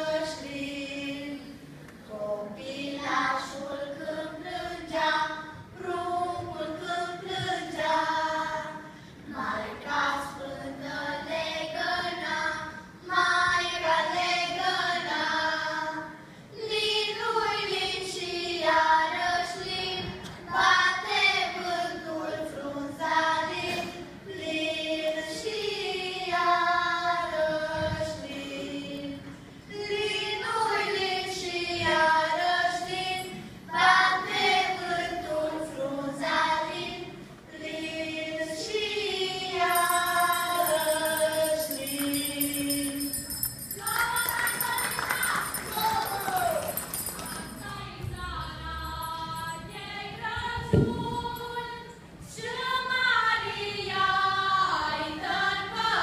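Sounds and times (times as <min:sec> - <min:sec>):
children singing: 0:52.4 - 0:56.0.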